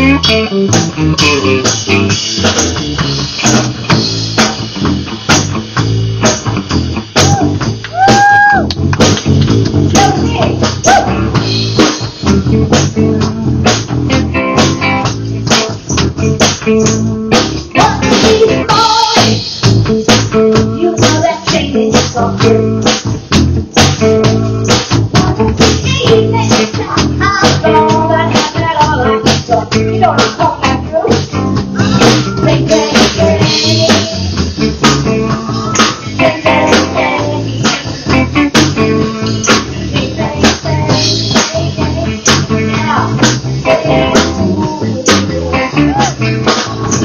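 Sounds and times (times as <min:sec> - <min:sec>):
bass guitar: 0:00.0 - 0:47.0
drum kit beat: 0:00.0 - 0:47.0
electric guitar: 0:00.0 - 0:47.0
woman singing: 0:17.8 - 0:19.5, 0:20.6 - 0:22.8, 0:25.2 - 0:31.3, 0:32.0 - 0:34.4, 0:36.0 - 0:46.8.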